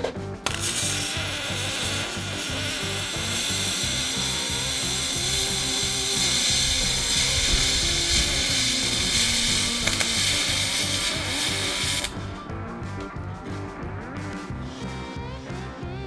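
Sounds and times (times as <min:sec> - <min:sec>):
background music: 0:00.0 - 0:16.0
welding arc hissing: 0:00.4 - 0:12.3.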